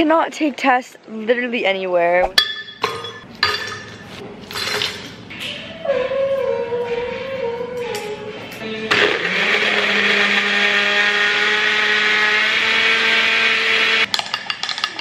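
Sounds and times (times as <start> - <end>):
blender crushing ice: 8.9 - 14.1.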